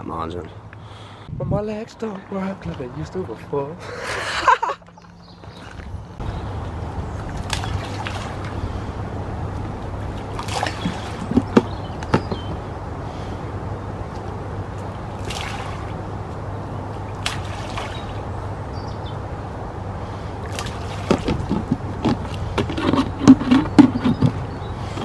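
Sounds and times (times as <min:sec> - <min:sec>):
bait splashing on water: 0:07.2 - 0:08.8, 0:10.1 - 0:11.6, 0:15.1 - 0:16.0, 0:17.1 - 0:18.2, 0:20.4 - 0:21.6
sharp knocks and rustles: 0:10.4 - 0:12.7, 0:20.6 - 0:25.0.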